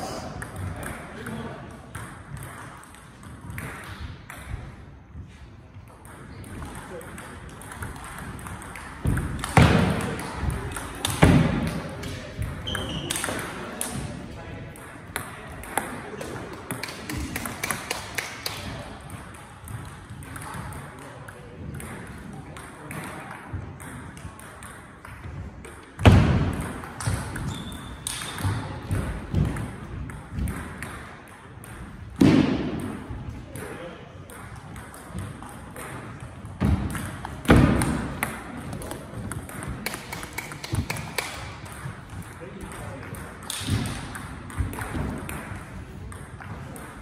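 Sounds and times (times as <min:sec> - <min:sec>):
knocks echoing in a hall: 0:00.0 - 0:47.0
ping pong ball clicking: 0:05.9 - 0:11.2, 0:37.8 - 0:47.0.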